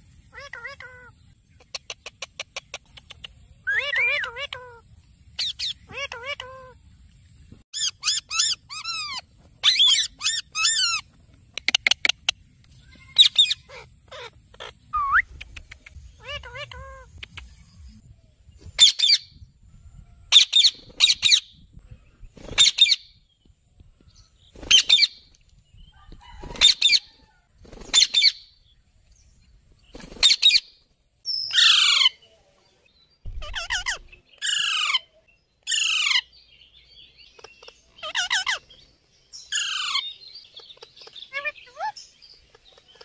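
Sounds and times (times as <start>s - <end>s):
parakeets screeching: 3.7s - 4.8s, 5.4s - 6.8s, 7.8s - 11.0s, 12.9s - 15.2s, 16.1s - 17.2s, 31.5s - 32.2s, 33.3s - 35.1s, 35.7s - 36.3s, 37.3s - 38.7s, 39.5s - 43.0s.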